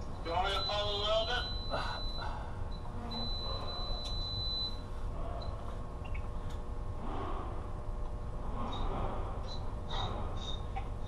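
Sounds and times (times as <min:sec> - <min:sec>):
low hum: 0:00.0 - 0:11.0
electronic alarm beep: 0:00.3 - 0:06.2.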